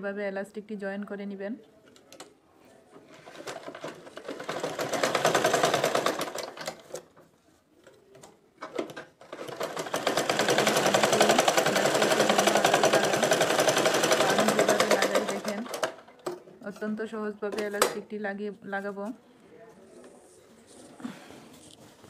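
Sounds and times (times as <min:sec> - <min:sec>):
sewing machine stitching: 0:03.1 - 0:07.1, 0:08.6 - 0:16.2.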